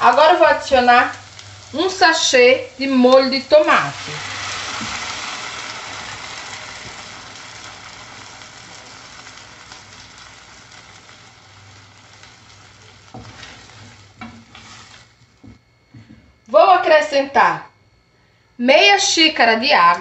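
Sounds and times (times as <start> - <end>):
sauce sizzling in a pan: 0.0 - 15.5.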